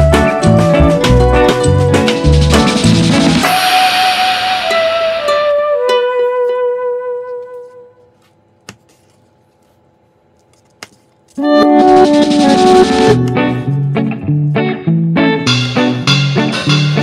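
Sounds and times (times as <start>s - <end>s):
upbeat band music: 0.0s - 6.1s, 11.4s - 13.7s, 15.5s - 17.0s
held keyboard chord: 11.4s - 14.0s.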